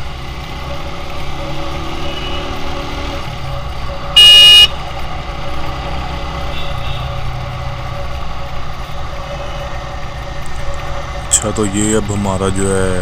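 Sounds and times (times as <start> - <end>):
road and wind noise: 0.0 - 13.0
horn blast: 4.2 - 4.7.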